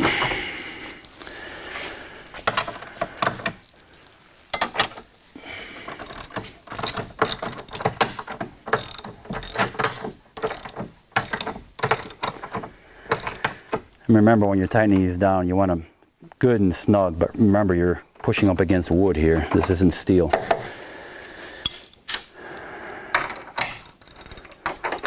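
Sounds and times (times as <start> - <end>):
ratchet wrench clicking: 6.0 - 8.1, 8.7 - 12.4, 13.1 - 13.5, 23.7 - 25.0.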